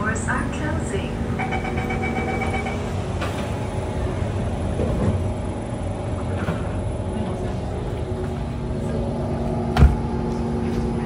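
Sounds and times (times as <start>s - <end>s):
train hum: 0.0s - 11.0s
door closing warning tone: 1.3s - 3.0s
sliding doors shutting: 2.3s - 5.3s.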